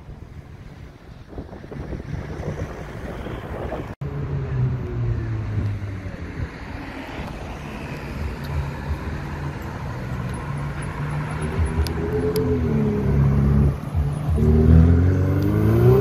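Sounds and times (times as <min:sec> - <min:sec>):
sports car engine approaching: 0:04.0 - 0:16.0.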